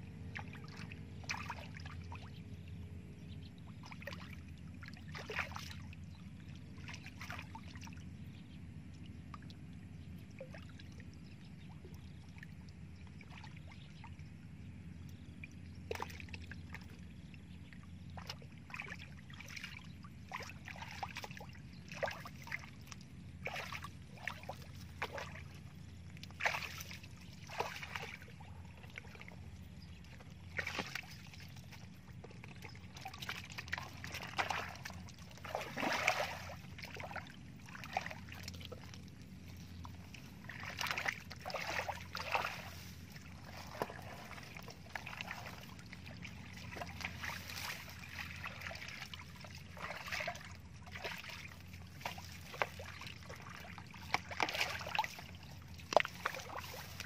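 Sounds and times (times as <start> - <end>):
steady low rumble: 0.0 - 54.4
hands splashing in muddy water: 26.3 - 28.3, 30.5 - 31.1, 33.0 - 38.6, 40.5 - 57.0.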